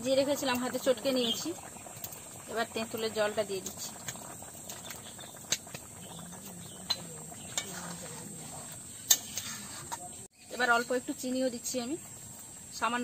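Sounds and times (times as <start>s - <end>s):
curry simmering in metal pan: 0.0s - 13.0s
metal ladle stirring: 6.9s - 10.1s.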